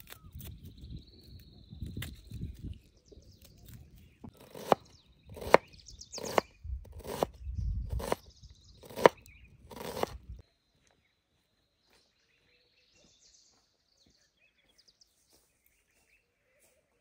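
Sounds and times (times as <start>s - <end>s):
cleaver chopping on wooden board: 4.3s - 7.3s, 8.0s - 8.2s, 8.8s - 10.2s.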